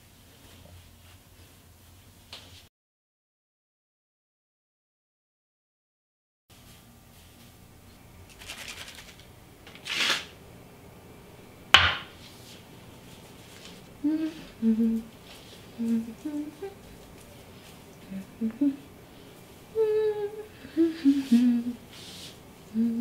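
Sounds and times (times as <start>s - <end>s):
person humming: 13.6s - 23.0s.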